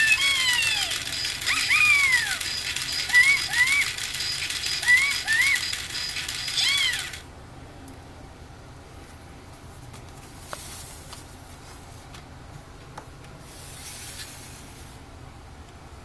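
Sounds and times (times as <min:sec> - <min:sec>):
low steady hum: 0:00.0 - 0:16.0
paper cards sliding on table: 0:13.4 - 0:15.0.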